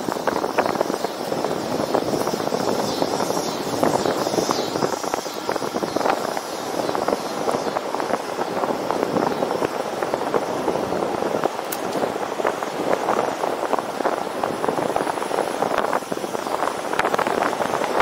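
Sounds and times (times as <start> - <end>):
rapid crackling: 0.0 - 10.4
wind buffeting microphone: 0.0 - 18.0.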